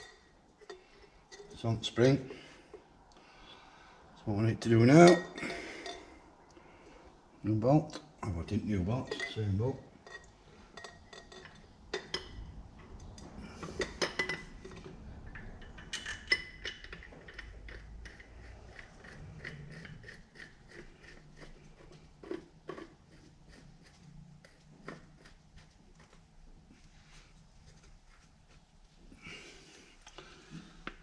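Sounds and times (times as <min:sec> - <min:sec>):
metallic clinks and taps: 0:09.0 - 0:20.0.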